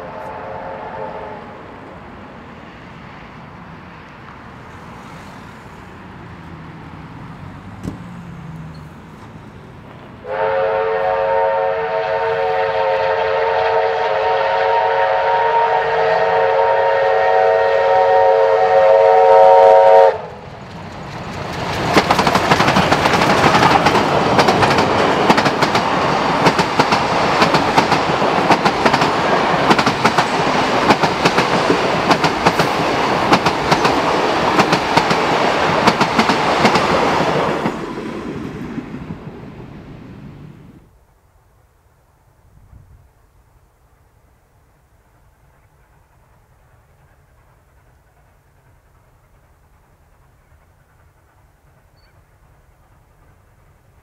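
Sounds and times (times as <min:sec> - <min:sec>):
steam locomotive whistle blast: 0:00.0 - 0:01.6, 0:10.2 - 0:20.4
train wheels clattering over rail joints: 0:20.3 - 0:38.4.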